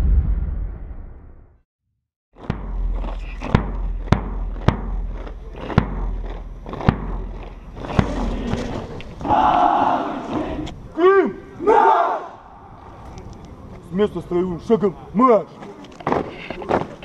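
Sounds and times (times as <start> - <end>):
low rumble: 0.0 - 1.6.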